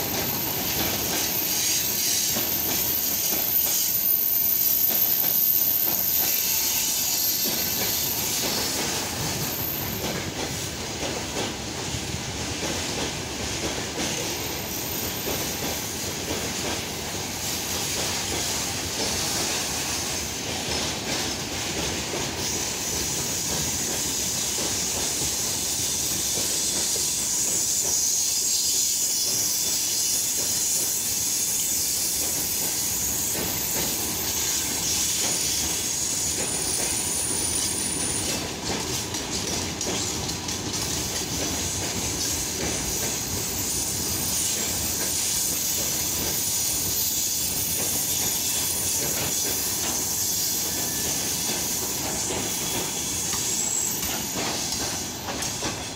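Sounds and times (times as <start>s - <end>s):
high hiss: 0.0s - 55.9s
train wheels rattling on rails: 0.0s - 55.9s
high wheel squeals: 0.1s - 10.1s, 42.2s - 55.9s.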